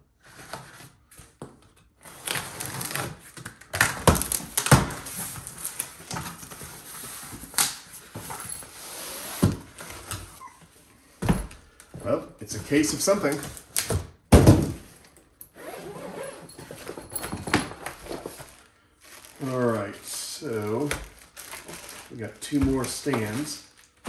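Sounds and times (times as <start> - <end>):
cardboard rustling: 16.6 - 24.0.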